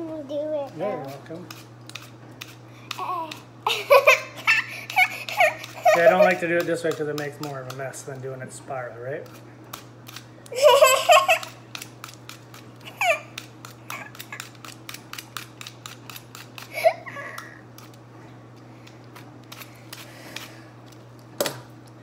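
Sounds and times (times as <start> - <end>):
knife cutting apple: 0.6 - 3.5, 4.1 - 8.2, 9.0 - 10.3, 11.1 - 18.0, 18.8 - 21.8
child laughing: 3.0 - 6.4, 10.5 - 11.6, 12.8 - 14.6, 16.6 - 17.6.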